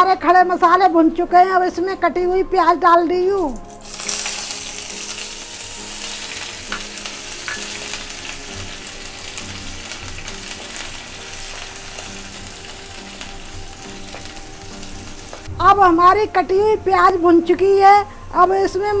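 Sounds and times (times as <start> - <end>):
onion sizzling in hot oil: 3.4 - 15.5.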